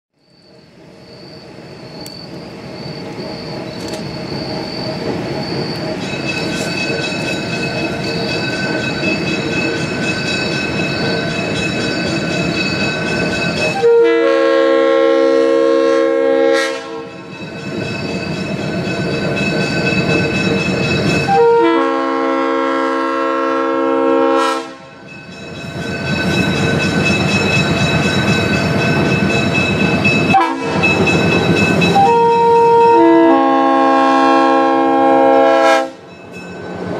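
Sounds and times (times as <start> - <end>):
diesel locomotive engine and wheels: 0.2 - 36.9
train air horn blasts: 13.7 - 17.2, 21.3 - 25.0, 30.3 - 30.9, 32.0 - 36.0.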